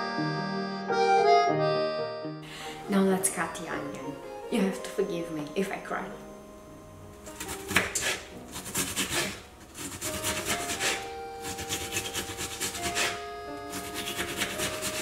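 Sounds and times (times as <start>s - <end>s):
knife cutting onion: 7.3s - 15.0s.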